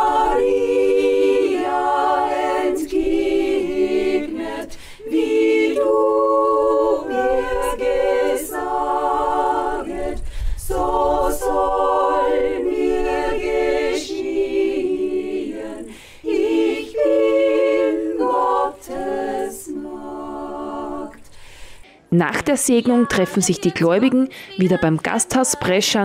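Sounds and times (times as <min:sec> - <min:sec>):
women's choir singing a cappella: 0:00.0 - 0:26.0.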